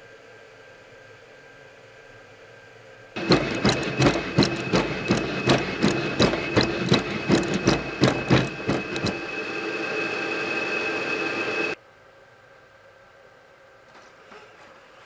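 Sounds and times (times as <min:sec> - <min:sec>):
robot legs clicking: 0:03.2 - 0:09.2.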